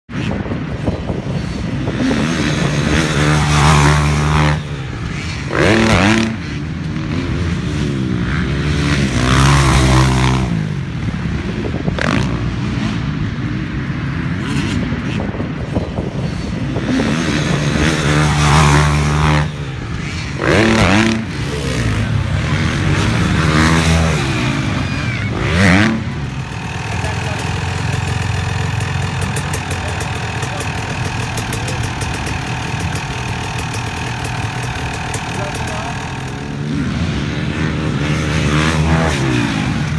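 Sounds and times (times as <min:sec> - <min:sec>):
dirt bike engines revving: 0:00.1 - 0:39.9
dirt bikes passing by: 0:00.1 - 0:39.9
dirt bike idling: 0:17.5 - 0:39.9.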